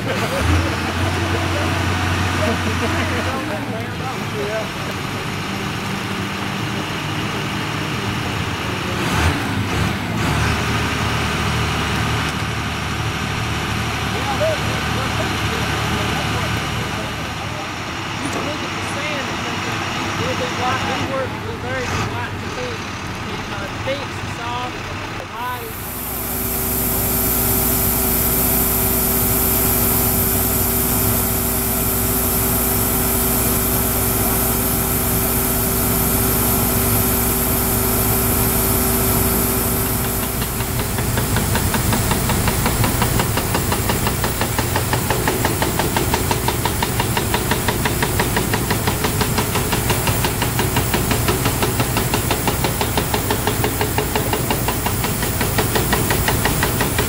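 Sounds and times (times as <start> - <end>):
air compressor running: 0.0 - 57.0
compressed air hissing: 25.6 - 57.0
drill hammer pounding: 25.6 - 57.0.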